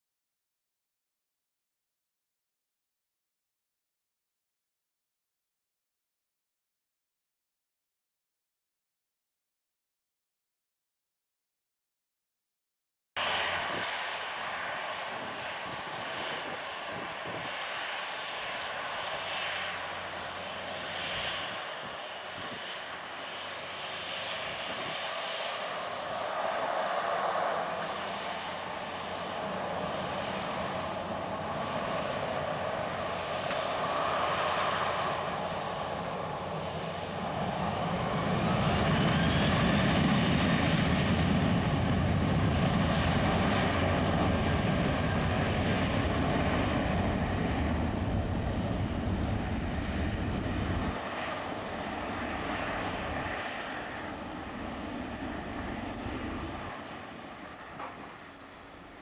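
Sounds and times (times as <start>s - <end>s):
jet engines whining: 13.2s - 59.0s
deep jet rumble: 13.3s - 58.8s.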